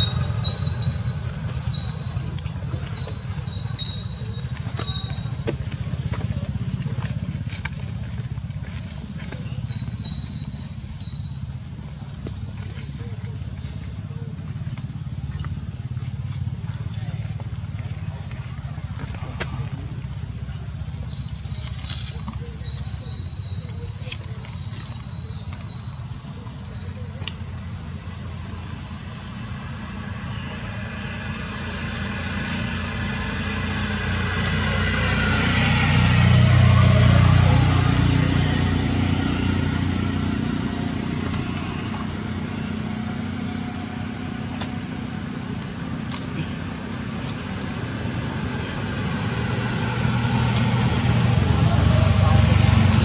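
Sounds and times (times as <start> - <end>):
engine passing by: 0.0 - 53.0
high insect drone: 0.0 - 53.0.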